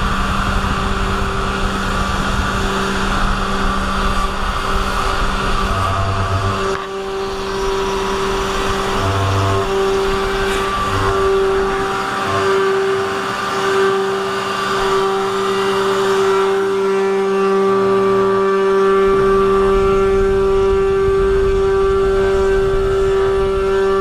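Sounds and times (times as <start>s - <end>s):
low hum: 0.0s - 24.0s
router spindle whining: 0.0s - 24.0s.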